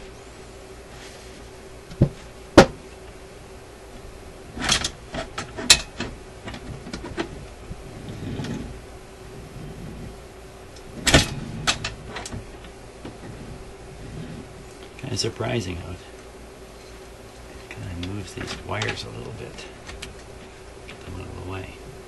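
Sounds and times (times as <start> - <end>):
mechanism clunk with rattles: 4.0 - 8.8, 9.4 - 14.6, 17.8 - 20.3.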